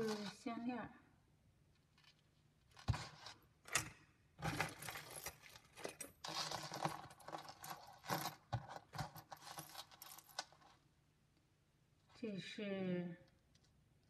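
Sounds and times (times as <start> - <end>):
chains and beads jangling: 4.8 - 10.6.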